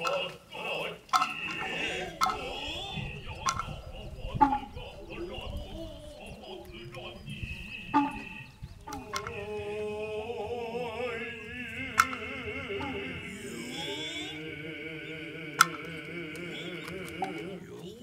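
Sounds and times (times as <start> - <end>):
wavering vocal chanting: 0.0 - 18.0
high steady tone: 1.2 - 9.5.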